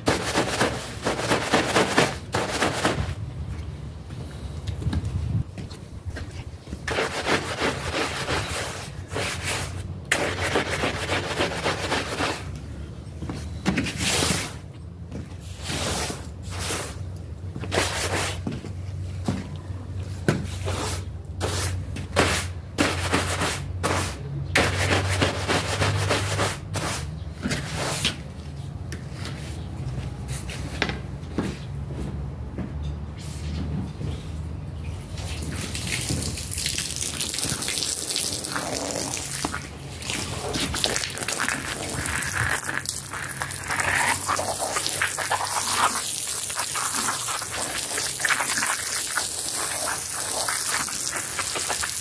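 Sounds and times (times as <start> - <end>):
squeegee scraping wet rug: 0.0 - 3.2, 6.2 - 12.8, 13.4 - 14.7, 15.4 - 18.7, 20.1 - 28.3, 35.1 - 52.0.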